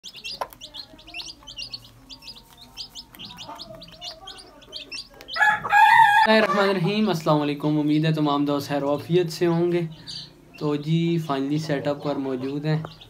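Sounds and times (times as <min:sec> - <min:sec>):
chicks peeping: 0:00.0 - 0:13.0
rooster crowing loudly: 0:05.4 - 0:06.7.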